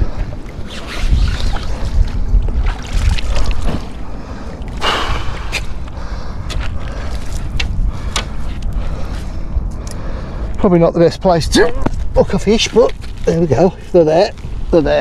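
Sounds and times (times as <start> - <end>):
wind buffeting microphone: 0.0 - 15.0
rush of noise: 4.8 - 5.9.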